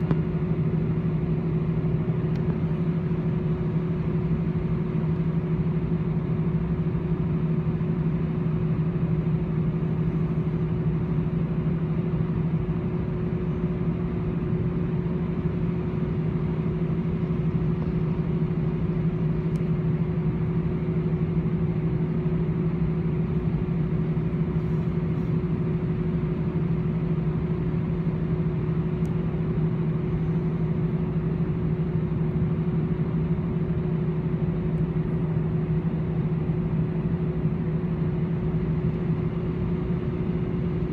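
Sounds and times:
aircraft engines idling hum: 0.0s - 40.9s.

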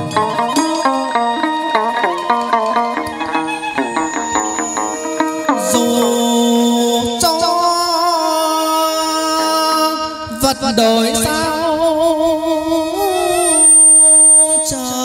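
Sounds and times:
sharp percussion strokes: 0.0s - 8.2s
plucked lute: 0.0s - 8.8s
person singing long wavering notes: 0.0s - 15.0s.

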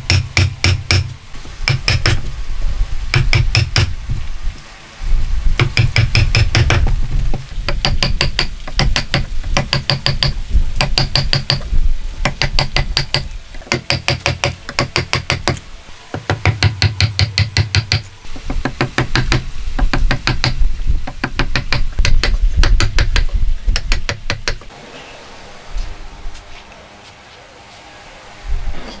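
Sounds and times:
hammer striking wood chisel: 0.0s - 2.3s, 3.1s - 3.9s, 5.6s - 6.9s, 7.7s - 24.7s.

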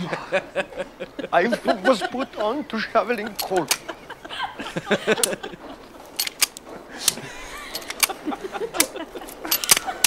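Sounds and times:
pistol metallic clicks: 3.4s - 3.9s, 6.1s - 8.2s, 8.8s - 10.0s.

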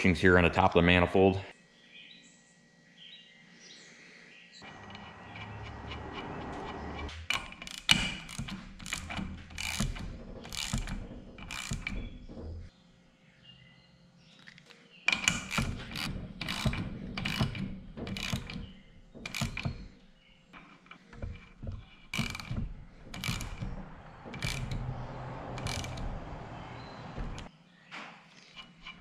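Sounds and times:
hand ratchet clicking: 4.7s - 12.6s, 15.1s - 20.0s, 20.6s - 26.4s.

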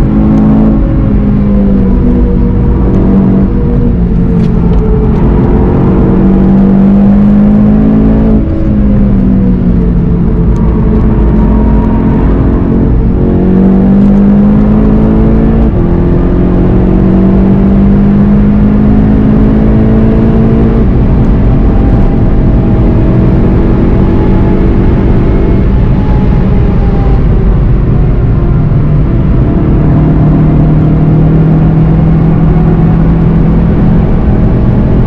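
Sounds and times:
car engine accelerating: 0.0s - 35.0s
road noise: 0.0s - 35.0s.

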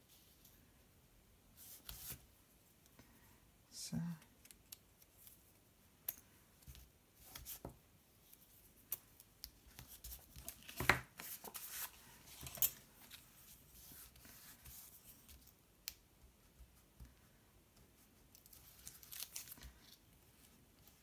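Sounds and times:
paper rustling and scraping: 9.8s - 15.3s.

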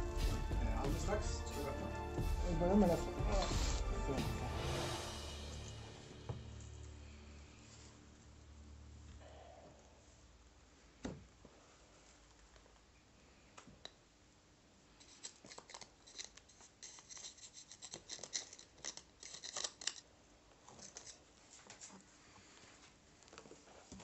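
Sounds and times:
metal tool scraping sand: 2.8s - 6.2s, 15.0s - 19.9s.

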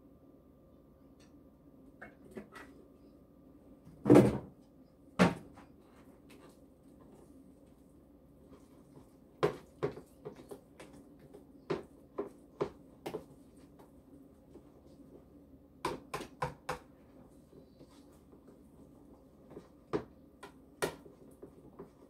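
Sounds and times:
whisk knocking in a bowl: 15.8s - 16.9s.

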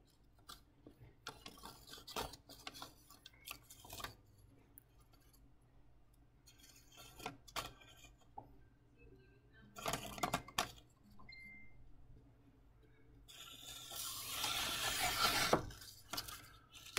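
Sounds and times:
knife cutting paper: 13.3s - 16.9s.

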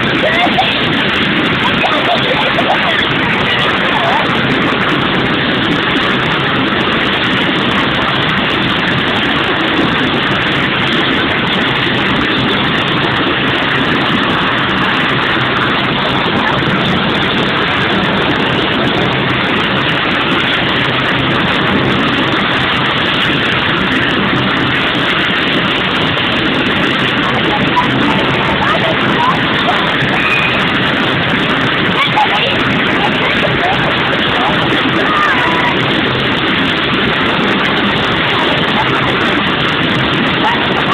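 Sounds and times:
helicopter engine and rotor: 0.0s - 40.9s.

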